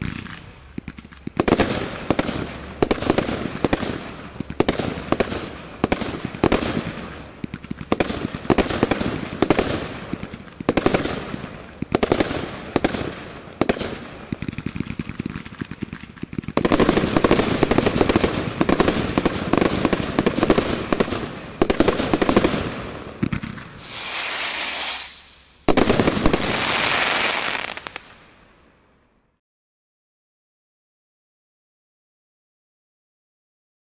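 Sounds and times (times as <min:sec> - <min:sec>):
crackle of firework stars: 0:00.0 - 0:29.4
firework hiss: 0:23.7 - 0:28.0.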